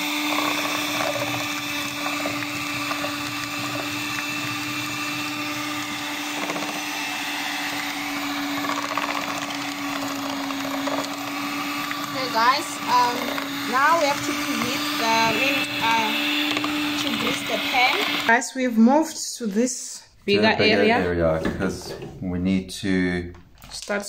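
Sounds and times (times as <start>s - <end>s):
beaters churning dough: 0.0s - 18.3s
electric hand mixer humming: 0.0s - 18.4s.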